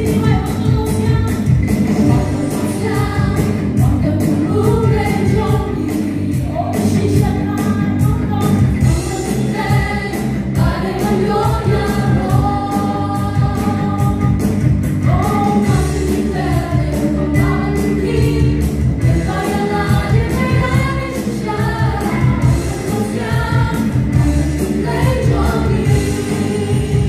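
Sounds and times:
acoustic guitar: 0.0 - 27.0
bass guitar: 0.0 - 27.0
drum kit beat: 0.0 - 27.0
women singing in harmony: 2.1 - 27.0.

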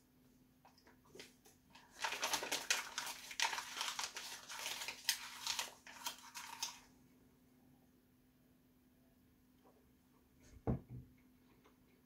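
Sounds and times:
paper crinkling as it is chewed: 1.1 - 6.9.

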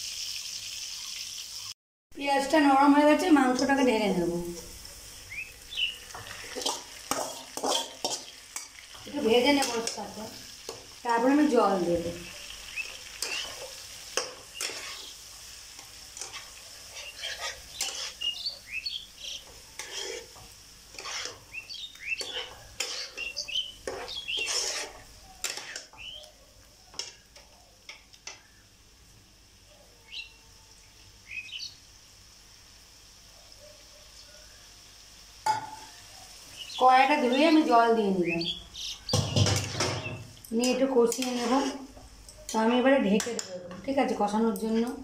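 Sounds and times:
meat sizzling in oil: 0.0 - 43.3
spatula scraping a pan: 6.1 - 11.0, 12.2 - 18.6, 19.2 - 26.2, 39.2 - 43.4.

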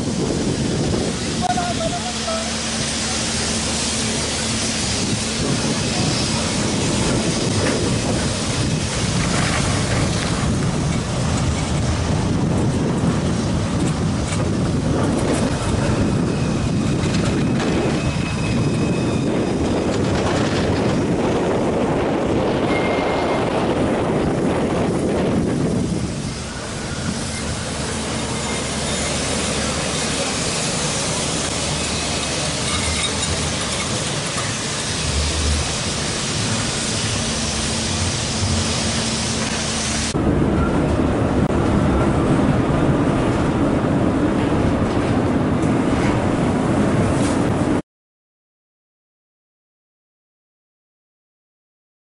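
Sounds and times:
tram rumbling past: 0.0 - 47.8
faint high wheel squeals: 16.0 - 19.6, 22.6 - 23.4, 28.2 - 35.1.

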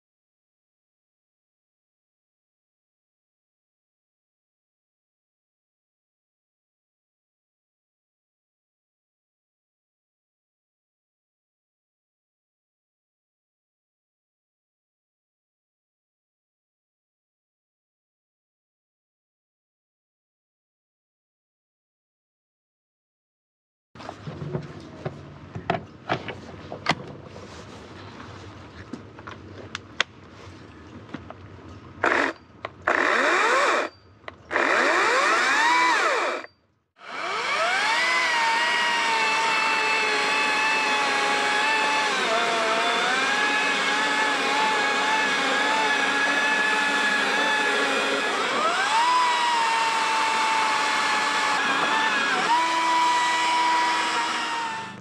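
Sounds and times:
electric chainsaw motor whine: 32.0 - 55.0.

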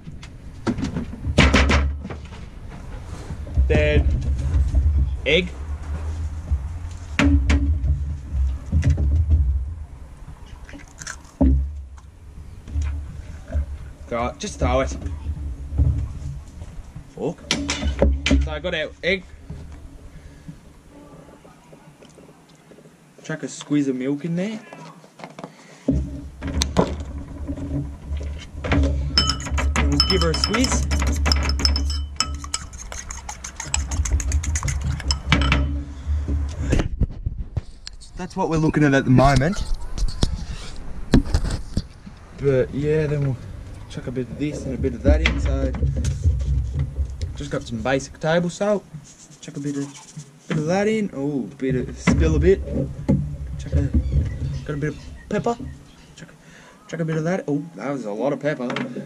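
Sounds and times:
low hum: 0.0 - 21.9
thump: 0.6 - 2.4, 5.9 - 9.9, 11.4 - 11.8, 17.5 - 18.5
low rumble: 2.2 - 17.2
egg knocking on bowl rim: 29.2 - 35.7.

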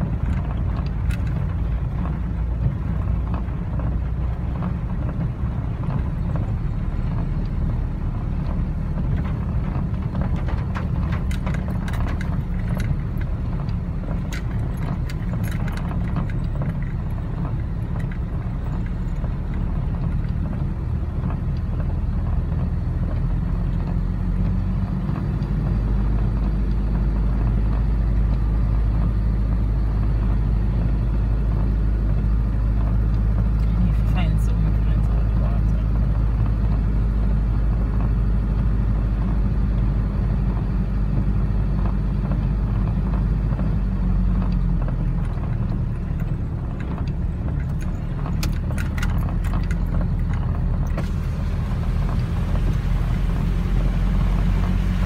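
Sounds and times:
engine and tyre rumble: 0.0 - 55.0.

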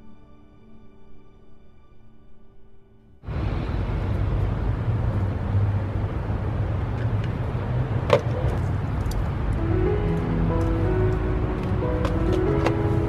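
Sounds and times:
steady low rumble: 3.2 - 13.0
music with plucked notes: 9.5 - 13.0.

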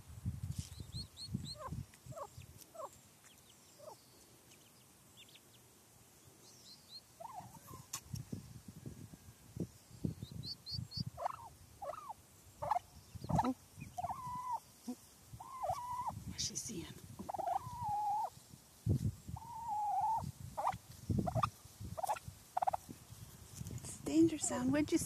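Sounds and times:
chicks peeping: 0.7 - 5.5, 10.2 - 16.2, 17.2 - 18.3, 19.3 - 22.9
turkey hen calling: 1.5 - 3.0, 7.2 - 7.8, 11.0 - 16.2, 17.2 - 18.4, 19.4 - 22.8.

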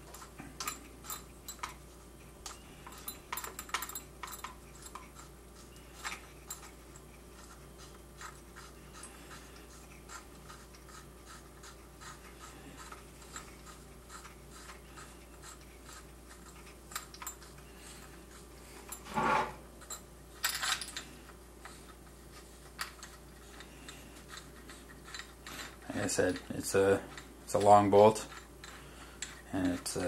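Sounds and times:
metal clicking and scraping: 2.4 - 7.5, 22.7 - 30.0.

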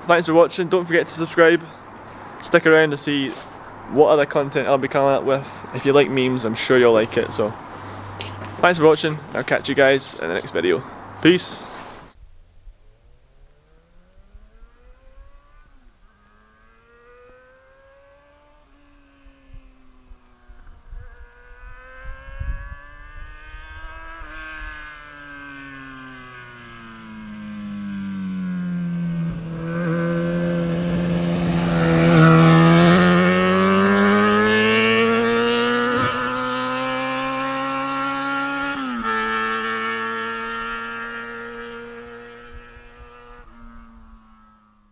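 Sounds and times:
motorcycle engine accelerating: 12.0 - 44.9.

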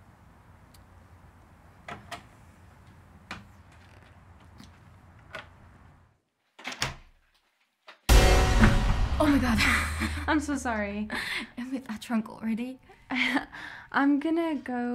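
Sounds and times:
quiet clicks and creaks: 1.9 - 5.6.

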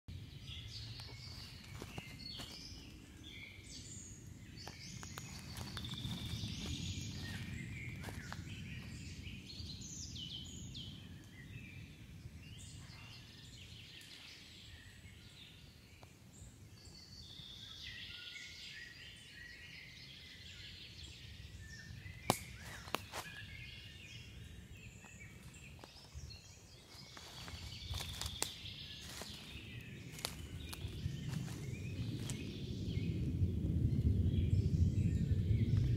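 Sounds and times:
steady low rumble: 0.1 - 13.8, 21.4 - 35.9
songbirds singing: 0.1 - 35.9
sharp snaps: 22.2 - 23.1.

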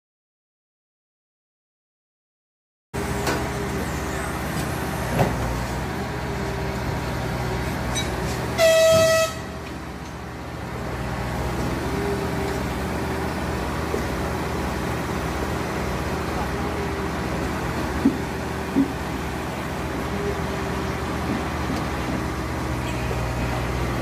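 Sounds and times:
low engine rumble: 3.0 - 24.0
railway horn blast: 8.5 - 9.7.

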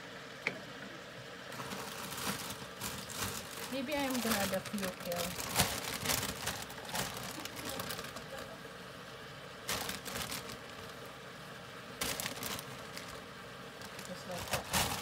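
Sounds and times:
plastic bag crinkling: 1.5 - 8.6, 9.6 - 11.1, 12.0 - 15.0.

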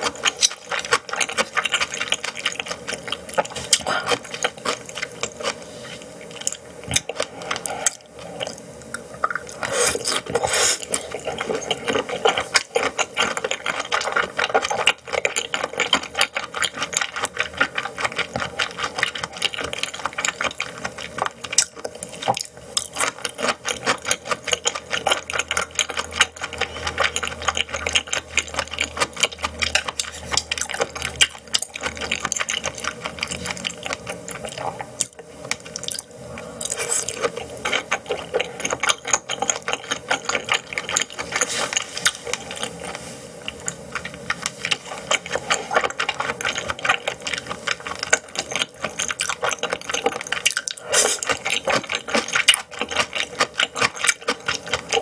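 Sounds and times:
person chewing with wet smacking: 0.0 - 55.0.

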